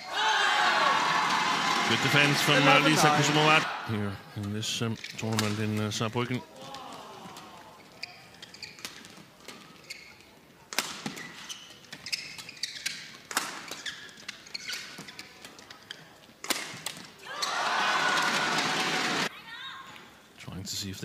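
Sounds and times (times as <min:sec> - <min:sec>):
crowd noise: 0:00.0 - 0:04.6, 0:17.2 - 0:19.6
shoes squeaking on court: 0:07.8 - 0:17.6.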